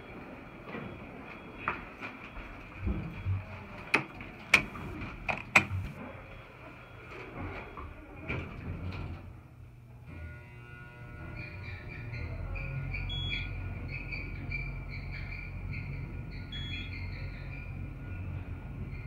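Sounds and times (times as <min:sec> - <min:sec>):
elevator doors sliding shut: 0:03.9 - 0:06.0.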